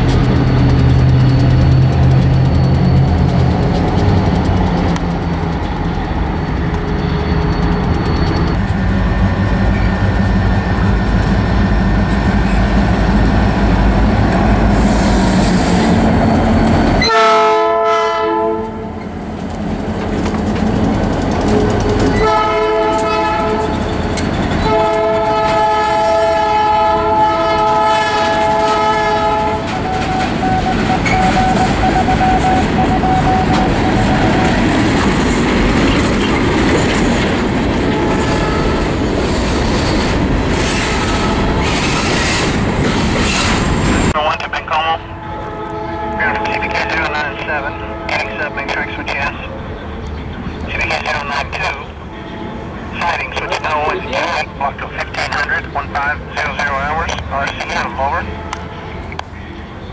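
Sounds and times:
freight cars clickety-clack: 0:00.0 - 0:17.1, 0:18.6 - 0:44.7, 0:46.2 - 0:52.1, 0:52.8 - 0:59.4
diesel locomotive rumbling: 0:00.0 - 0:59.9
locomotive air horn blasts: 0:17.0 - 0:19.0, 0:21.6 - 0:23.8, 0:24.6 - 0:34.7, 0:45.0 - 0:48.6, 0:52.1 - 0:52.8.

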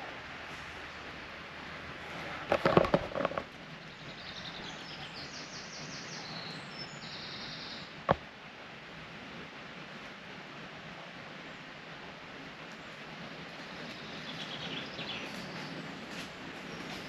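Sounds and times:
wind in leaves: 0:00.0 - 0:17.0
loud knocks and rustling: 0:02.5 - 0:03.5
songbird chirping and trilling: 0:03.6 - 0:08.0, 0:13.3 - 0:17.0.

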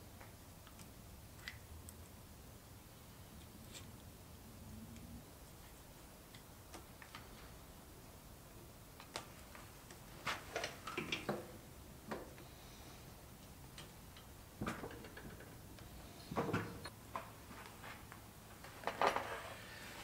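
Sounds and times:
light clicks and knocks of tools: 0:13.4 - 0:17.7.

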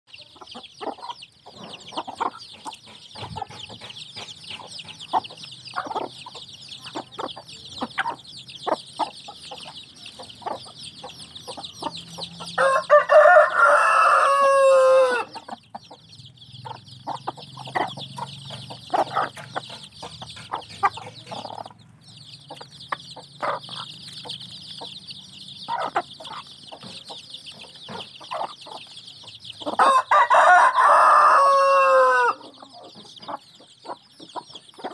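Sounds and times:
chicks peeping: 0:00.1 - 0:34.9
hens clucking: 0:00.2 - 0:34.9
rooster crowing: 0:12.6 - 0:15.4, 0:29.8 - 0:32.5.

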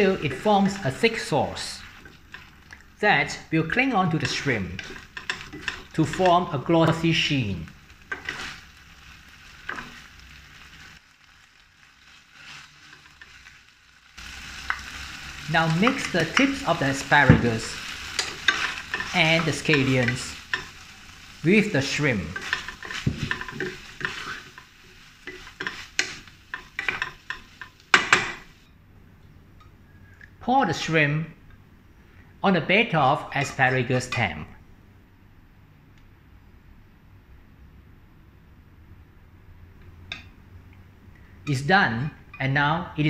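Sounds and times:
shrimp sizzling in a frying pan: 0:00.0 - 0:03.0, 0:04.2 - 0:28.7
wooden spatula scraping pan: 0:04.2 - 0:06.4, 0:08.1 - 0:08.6, 0:17.3 - 0:20.8, 0:22.2 - 0:28.4.

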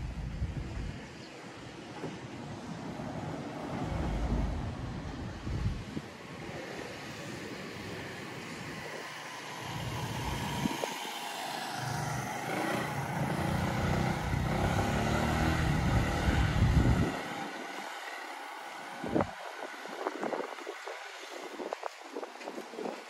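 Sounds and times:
vehicle engine passing by: 0:02.8 - 0:06.0, 0:06.6 - 0:21.6.

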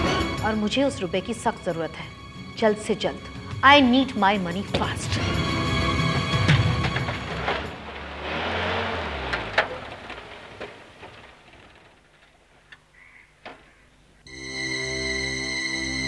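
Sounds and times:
background music: 0:00.0 - 0:08.8, 0:14.3 - 0:16.0
vehicle engine running: 0:03.3 - 0:12.7.

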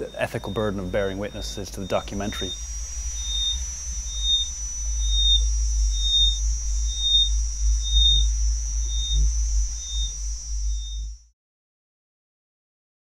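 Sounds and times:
deep low rumble: 0:00.0 - 0:11.3
steady high-pitched whine: 0:00.0 - 0:11.4.

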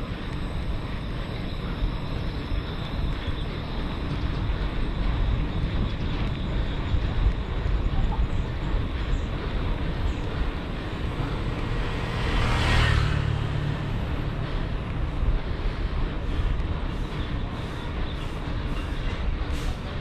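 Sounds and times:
road rumble: 0:00.0 - 0:20.0
wind: 0:00.0 - 0:20.0
vehicle passing: 0:08.6 - 0:18.0.

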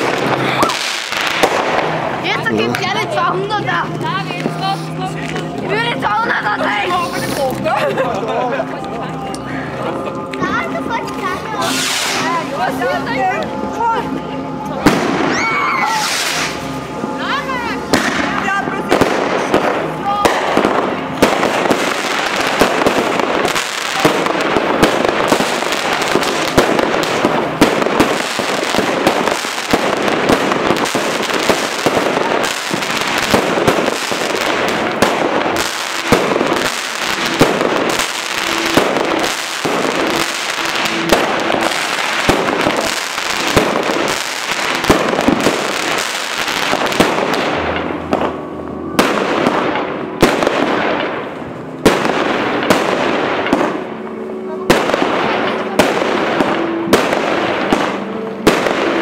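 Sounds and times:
firework shots and bursting shells: 0:00.0 - 0:02.7, 0:17.9 - 0:54.0, 0:54.7 - 0:59.0
firework crackling: 0:00.0 - 0:59.0.

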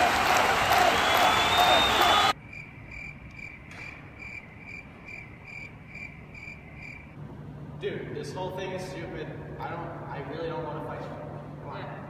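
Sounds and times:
crowd applause: 0:00.0 - 0:02.4
crickets chirping: 0:01.0 - 0:07.2.

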